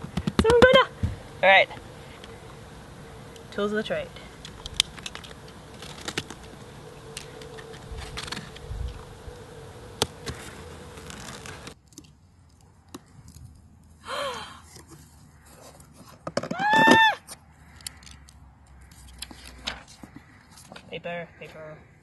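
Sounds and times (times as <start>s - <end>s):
high-pitched squeal: 0.6s - 11.8s
clicks and rustles: 4.4s - 14.0s.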